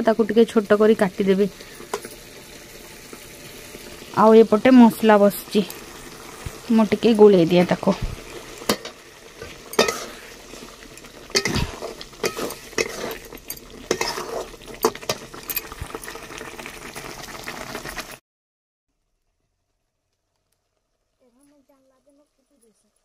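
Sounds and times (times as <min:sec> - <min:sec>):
paste sizzling in oil: 0:00.0 - 0:18.2
metal spatula scraping pot: 0:07.5 - 0:16.2.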